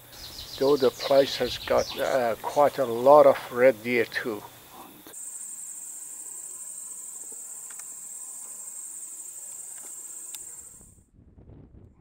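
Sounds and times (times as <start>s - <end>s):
insects shrilling: 0.0s - 11.0s
faint clicks: 9.5s - 10.5s.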